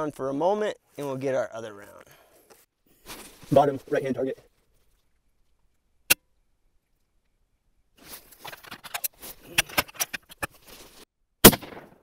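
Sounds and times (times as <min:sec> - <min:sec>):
rifle shot: 0:11.4 - 0:12.0.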